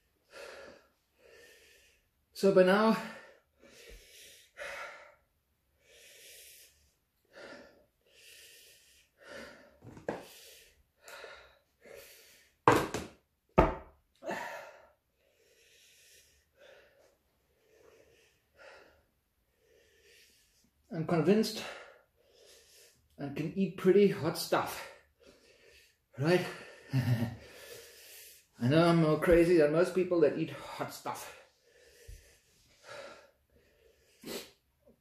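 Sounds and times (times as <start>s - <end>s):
man breathing hard: 0.0s - 2.3s, 2.9s - 12.7s, 14.2s - 20.9s, 21.6s - 23.2s, 24.8s - 28.6s, 31.2s - 35.0s.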